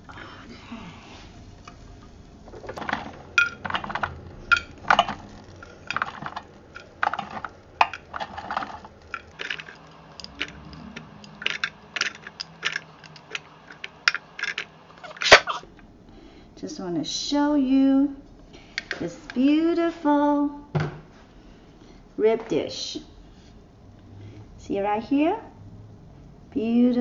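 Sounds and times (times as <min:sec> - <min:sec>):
kitchen tongs clicking and clattering: 0:02.7 - 0:15.6.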